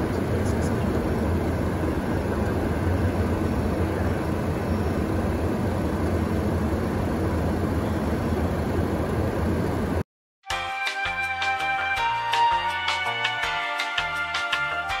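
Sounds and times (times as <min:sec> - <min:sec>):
airplane engine and propeller: 0:00.0 - 0:10.0.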